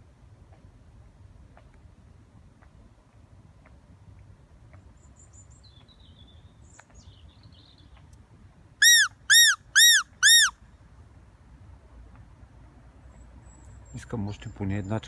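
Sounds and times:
predator call squeals: 8.8s - 10.5s.

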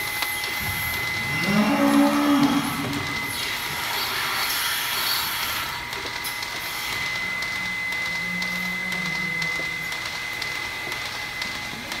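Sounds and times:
high whine: 0.0s - 11.4s
milking machine hiss: 0.6s - 9.8s.

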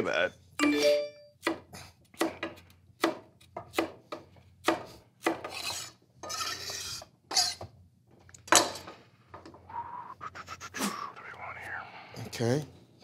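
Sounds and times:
knife chopping on wooden board: 1.4s - 5.9s.

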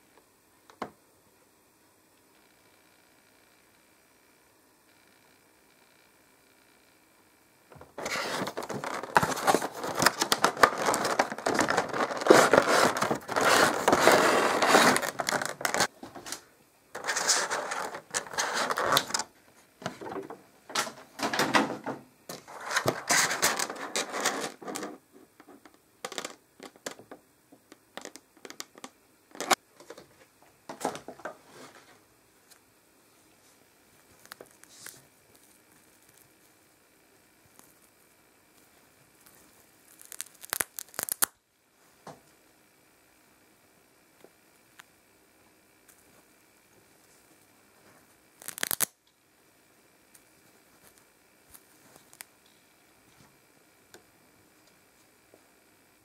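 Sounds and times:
plastic and cardboard crinkling: 7.7s - 16.4s, 17.0s - 27.1s.

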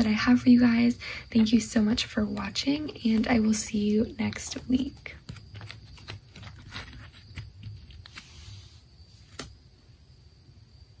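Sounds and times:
cards clicking and rustling: 4.3s - 8.6s, 9.2s - 9.6s.

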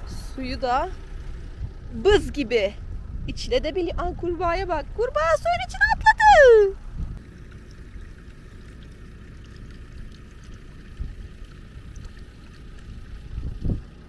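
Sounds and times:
low steady rumble: 0.0s - 14.0s
water pouring from hose into trough: 7.4s - 14.0s.

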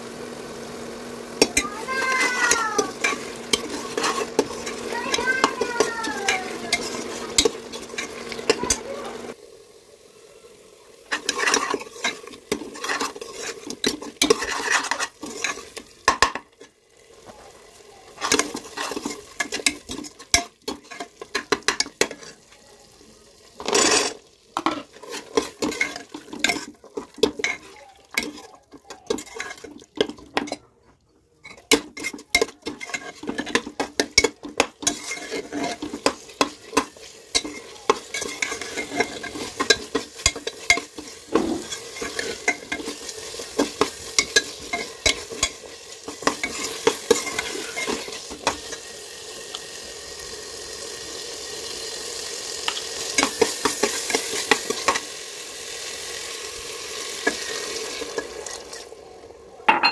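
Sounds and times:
loud hiss of food added: 0.0s - 16.0s, 34.6s - 59.1s
light sizzle: 0.0s - 59.8s
ladle scraping metal pot: 1.4s - 9.4s, 11.0s - 16.7s, 18.1s - 22.4s, 23.6s - 30.6s, 31.4s - 48.9s.

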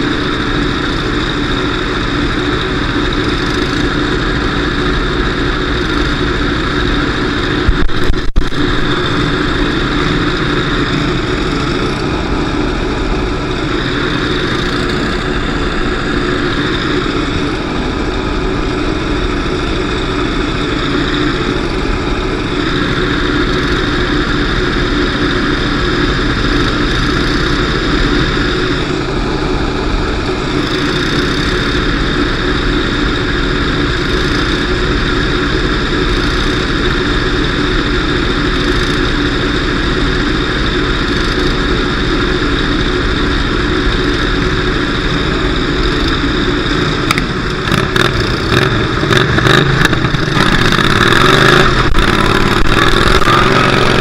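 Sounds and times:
car engine revving: 44.2s - 54.0s.

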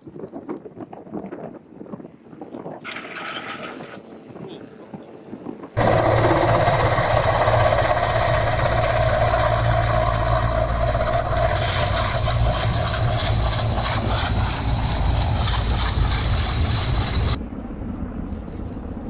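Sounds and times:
helicopter flying low: 2.9s - 19.0s.

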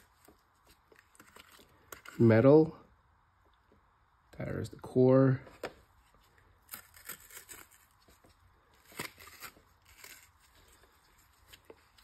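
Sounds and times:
paper crinkling and tearing: 0.0s - 2.3s, 6.0s - 12.0s.

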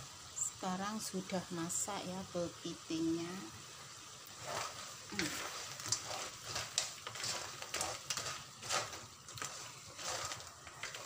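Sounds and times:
wooden spatula scraping frying pan: 4.3s - 11.0s.

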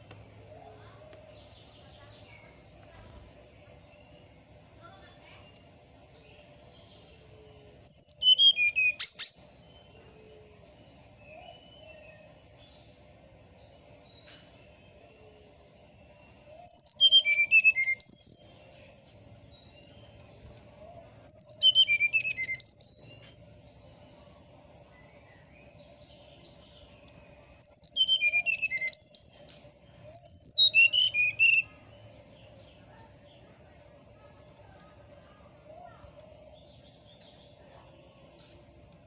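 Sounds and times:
bird singing: 0.4s - 13.0s, 13.6s - 39.0s.

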